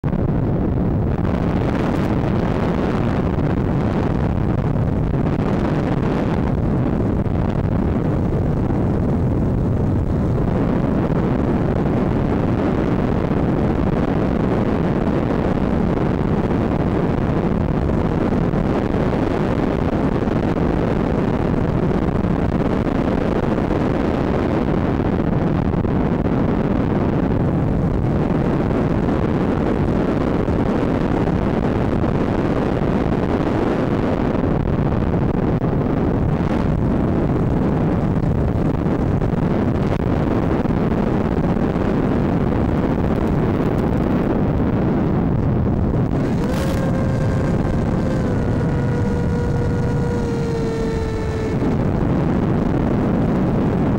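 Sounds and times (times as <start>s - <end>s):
airflow over microphone: 0.0s - 53.9s
electric motor and propeller whine: 46.1s - 53.1s.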